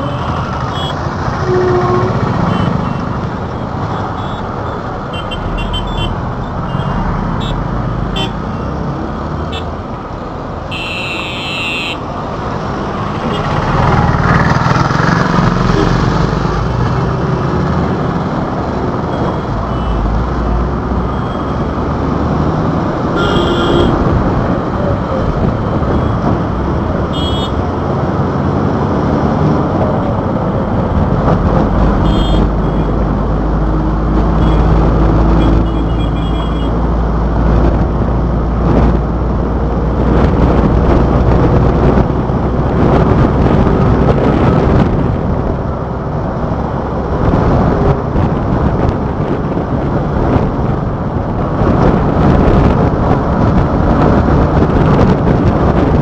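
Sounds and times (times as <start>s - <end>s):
vehicle horn beeps: 0.0s - 3.0s, 10.7s - 12.0s, 23.2s - 24.0s, 27.1s - 27.6s, 32.0s - 32.9s, 35.4s - 36.7s
road traffic rumble: 0.0s - 56.0s.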